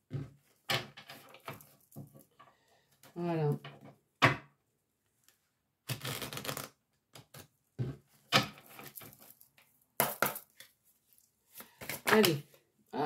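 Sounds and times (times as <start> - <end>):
cards being shuffled: 5.9 - 7.5, 11.5 - 12.5.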